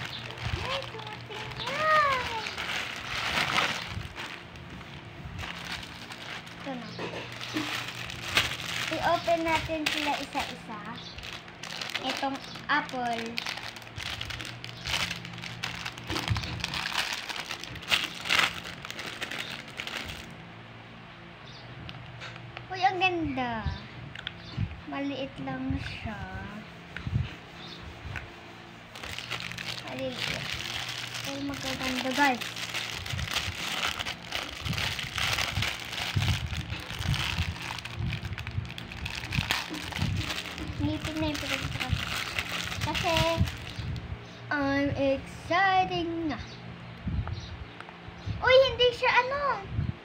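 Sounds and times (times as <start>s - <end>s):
plastic packaging crinkling: 0.0s - 20.4s, 28.9s - 44.0s.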